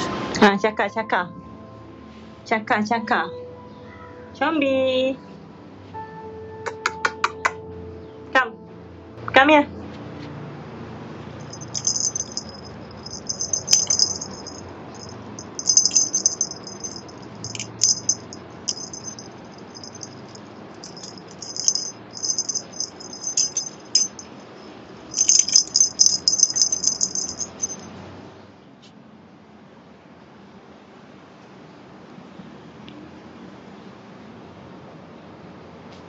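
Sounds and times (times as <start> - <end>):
small jingle bell jingling: 11.4 - 24.5, 25.1 - 27.9.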